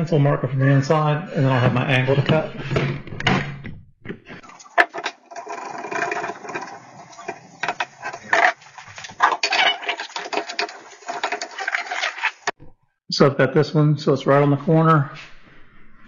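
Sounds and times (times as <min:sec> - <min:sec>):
wood knocks and scrapes: 0:02.2 - 0:12.6.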